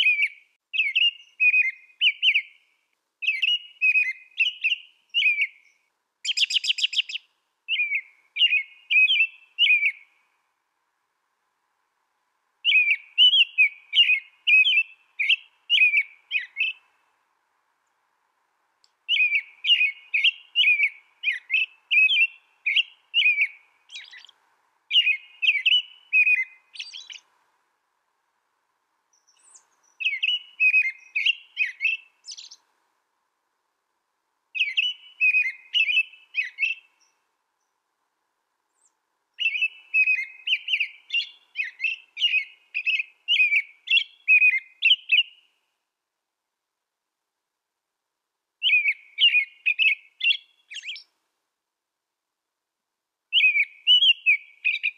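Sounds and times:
robin singing: 0.0 - 10.5, 12.6 - 17.2, 18.8 - 27.4, 29.0 - 32.7, 34.5 - 37.8, 38.6 - 45.8, 48.6 - 51.2, 53.3 - 54.9.

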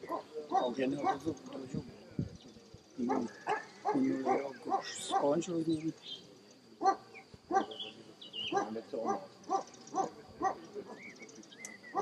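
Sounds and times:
dog barking: 0.0 - 1.3, 3.0 - 5.4, 6.8 - 7.8, 8.5 - 11.0.

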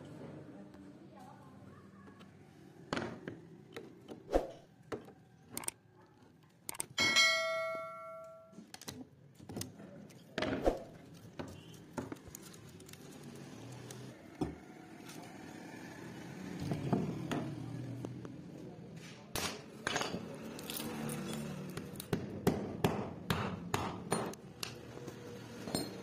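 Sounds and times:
pliers cutting wire: 5.5 - 5.8, 20.4 - 22.2.

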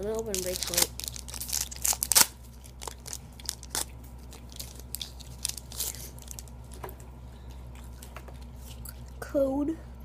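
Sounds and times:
foil wrapper tearing and crinkling: 0.1 - 6.5.

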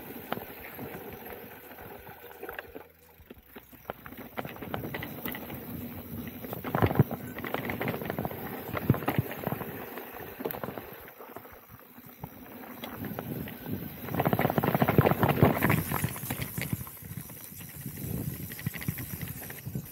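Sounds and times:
bike tyres rolling on dirt: 0.0 - 19.9.

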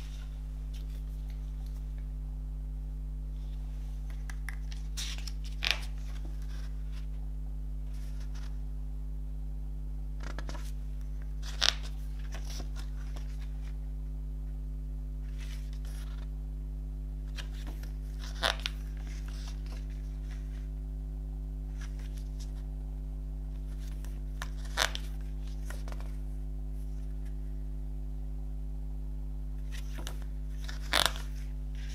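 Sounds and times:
paper pages turning: 0.0 - 2.1, 3.4 - 7.2, 7.9 - 8.6, 10.2 - 13.8, 15.3 - 16.3, 17.3 - 20.7, 21.7 - 22.6, 23.6 - 26.2, 29.6 - 31.9
paper handling: 0.0 - 2.2, 3.4 - 7.2, 10.2 - 13.8, 17.3 - 20.7, 21.7 - 22.6, 23.6 - 26.2, 29.6 - 31.9
low electrical hum: 0.0 - 31.9.

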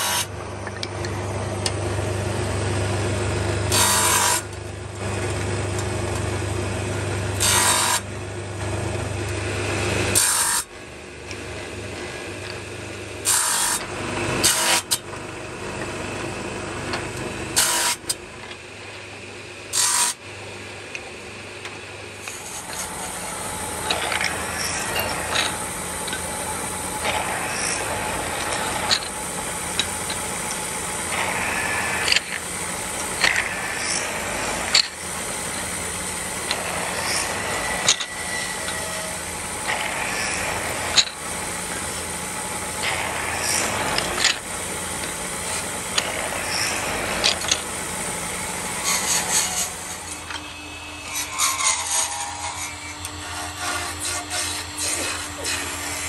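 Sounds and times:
wood lathe humming: 19.7 - 56.0
chisel scraping turning wood: 22.2 - 34.9, 48.8 - 50.3, 51.0 - 56.0.

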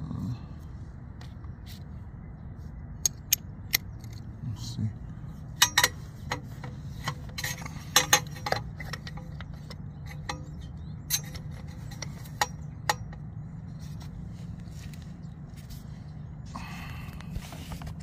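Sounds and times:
steady low hum: 0.0 - 18.0
metal socket clinking: 5.6 - 6.4, 7.0 - 13.2.

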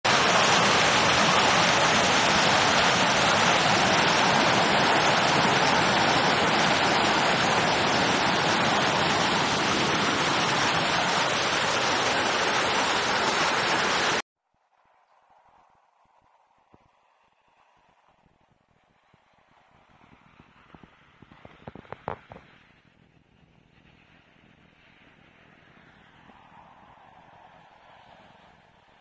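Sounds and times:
hailstones pelting down: 0.1 - 14.2.

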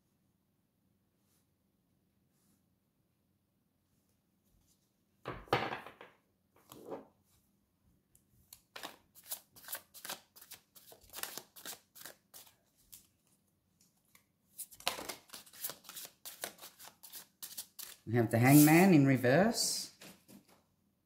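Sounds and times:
cards being shuffled: 8.5 - 19.0.

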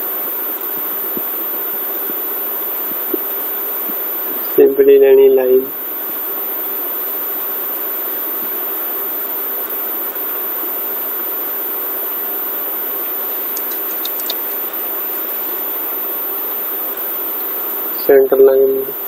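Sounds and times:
microphone hiss: 0.0 - 19.0
faint clicks: 13.6 - 14.4.

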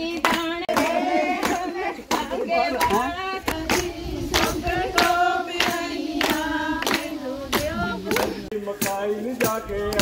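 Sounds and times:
group singing a folk song: 0.0 - 10.0
rhythmic hand claps: 0.0 - 10.0.

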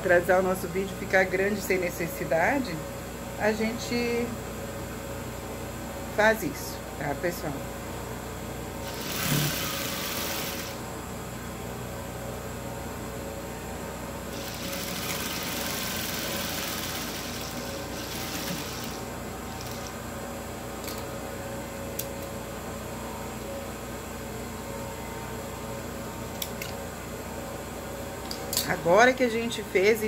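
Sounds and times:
sewing machine humming: 8.8 - 10.8, 14.3 - 20.0
sewing machine stitching: 8.8 - 10.8, 14.3 - 19.9.

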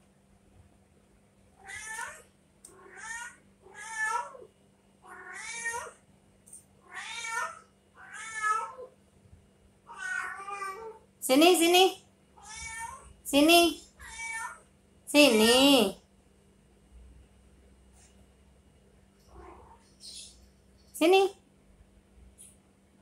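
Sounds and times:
cat meowing: 1.6 - 6.0, 6.8 - 8.9, 9.9 - 11.0, 12.4 - 13.1, 14.0 - 14.6, 19.3 - 19.8.

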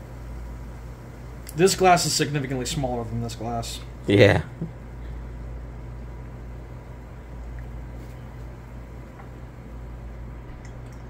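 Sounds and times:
low hum: 3.8 - 11.0.

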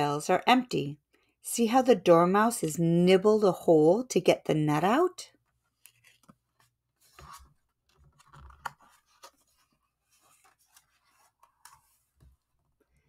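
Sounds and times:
book page turning: 5.4 - 12.8.

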